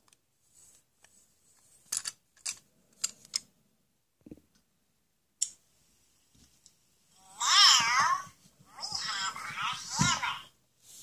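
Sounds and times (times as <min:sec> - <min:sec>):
plastic toy pieces clicking: 0:01.9 - 0:03.4.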